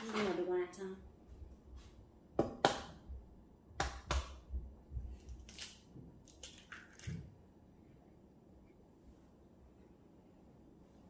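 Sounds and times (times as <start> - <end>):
egg shell crackling: 5.2 - 7.2.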